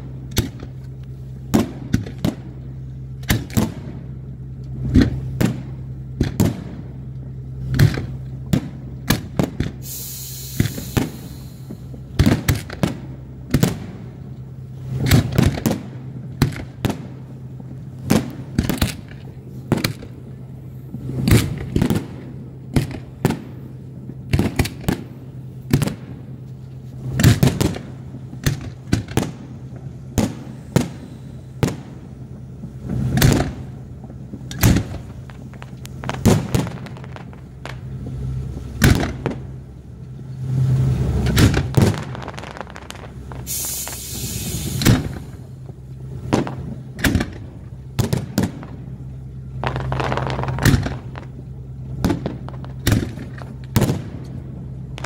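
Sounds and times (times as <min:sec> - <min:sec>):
steady low hum: 0:00.0 - 0:55.0
fireworks bursting: 0:01.4 - 0:04.1, 0:04.8 - 0:07.0, 0:07.7 - 0:55.0
brief hiss: 0:09.8 - 0:12.0, 0:43.4 - 0:45.4.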